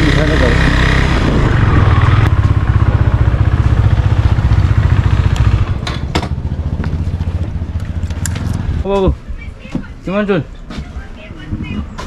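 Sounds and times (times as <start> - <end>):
motorcycle engine running: 0.0 - 8.8.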